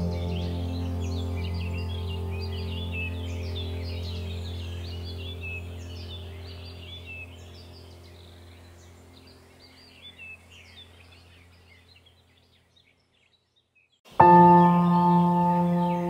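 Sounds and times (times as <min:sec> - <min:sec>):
low steady drone: 0:00.0 - 0:11.6
small birds chirping: 0:00.0 - 0:16.0.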